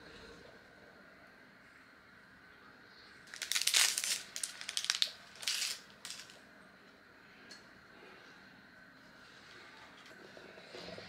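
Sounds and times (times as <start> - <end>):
plastic wrapper crinkling: 3.3 - 6.4.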